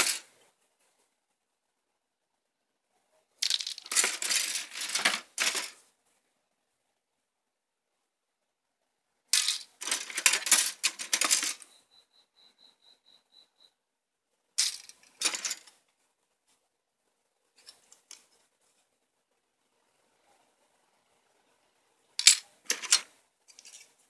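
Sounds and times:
plastic parts clattering in box: 0.0s - 0.3s, 3.4s - 5.8s, 9.4s - 11.6s, 14.6s - 15.7s, 22.2s - 23.8s.

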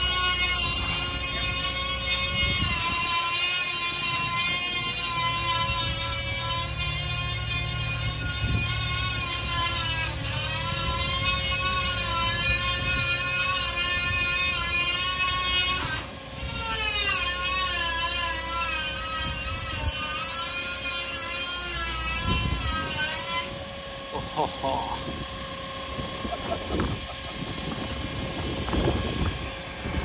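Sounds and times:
crane hydraulics whining: 0.0s - 30.0s
truck engine running: 23.6s - 30.0s.

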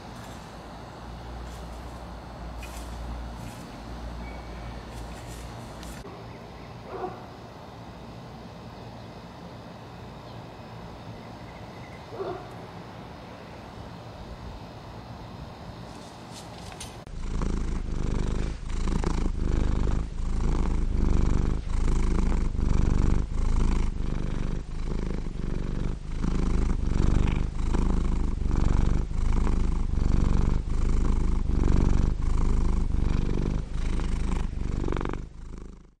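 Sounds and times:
cat purring loudly: 0.0s - 6.1s, 16.8s - 36.0s.

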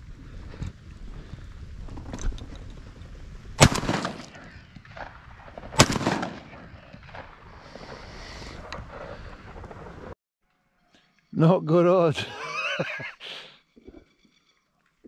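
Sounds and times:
shotgun shots echoing: 3.6s - 4.4s, 5.6s - 7.2s.

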